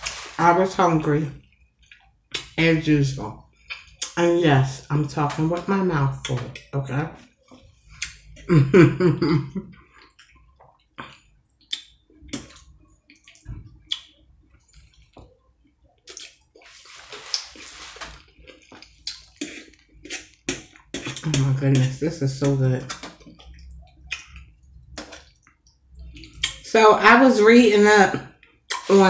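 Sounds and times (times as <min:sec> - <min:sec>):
wet chewing: 0:09.7 - 0:26.6.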